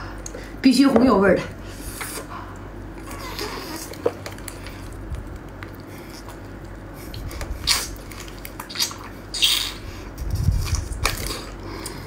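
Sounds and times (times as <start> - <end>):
wet chewing and squelching: 2.0 - 12.0
wet smacks: 3.8 - 9.8.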